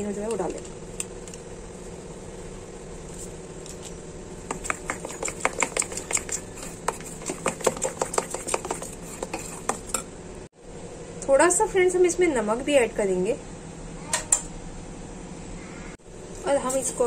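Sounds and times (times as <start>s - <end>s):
spoon clinking and scraping bowl: 4.5s - 10.1s.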